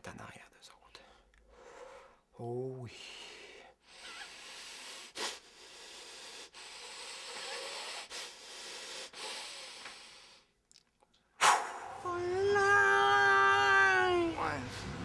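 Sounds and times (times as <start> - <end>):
man blowing breathy hisses: 3.8 - 10.5.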